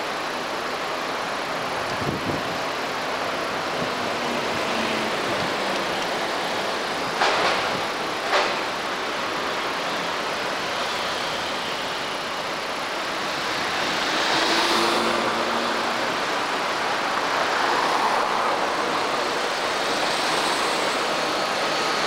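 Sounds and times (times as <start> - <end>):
cars and scooters driving past: 13.0 - 22.0.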